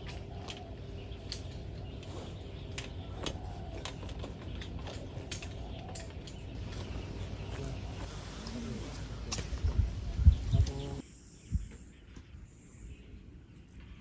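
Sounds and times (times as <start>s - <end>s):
light metal clicks and knocks: 0.0s - 7.6s
low outdoor background: 0.0s - 14.0s.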